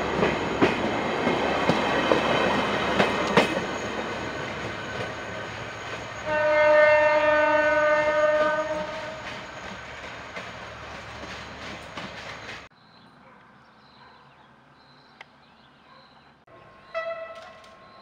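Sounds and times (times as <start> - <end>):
train wheels clacking over rails: 0.0 - 6.3, 8.0 - 12.7
train horn blast: 6.2 - 9.3, 16.6 - 17.8.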